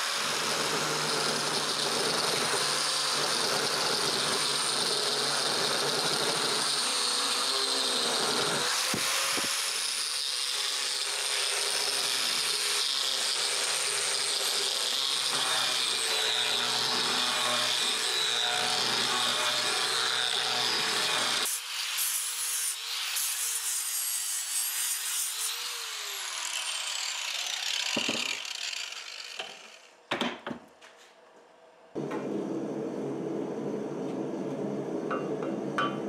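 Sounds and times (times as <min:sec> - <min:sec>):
angle grinder grinding metal: 0:00.0 - 0:30.0
grinder spinning freely with whine: 0:25.3 - 0:30.0.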